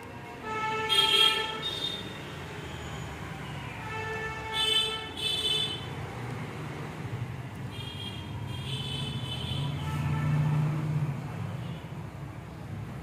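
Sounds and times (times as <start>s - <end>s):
traffic rumble: 0.0s - 13.0s
vehicle horns honking: 0.4s - 2.2s, 3.8s - 5.9s, 7.7s - 10.8s.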